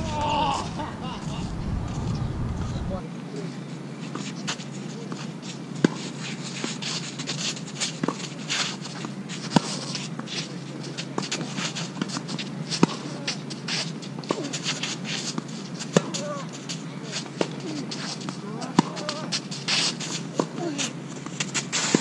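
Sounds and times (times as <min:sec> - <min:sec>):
distant tennis shots: 0:00.0 - 0:03.0
tennis shoes scuffing on court: 0:04.2 - 0:22.0.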